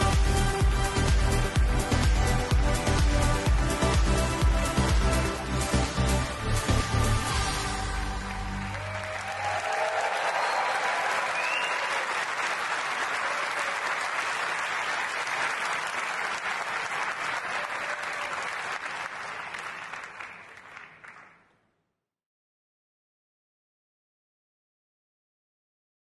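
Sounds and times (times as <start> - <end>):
audience applauding and cheering: 7.2 - 21.5
rising whistle: 10.2 - 12.1.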